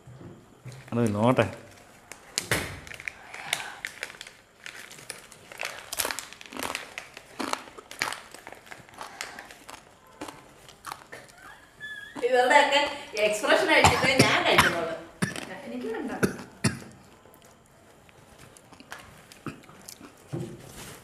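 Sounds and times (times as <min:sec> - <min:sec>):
foil wrapper crinkling: 0:00.8 - 0:11.4, 0:17.4 - 0:21.0.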